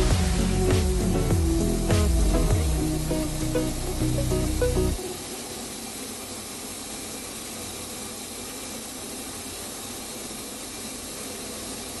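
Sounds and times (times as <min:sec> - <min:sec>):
coffee beans pouring down chute: 0:00.0 - 0:12.0.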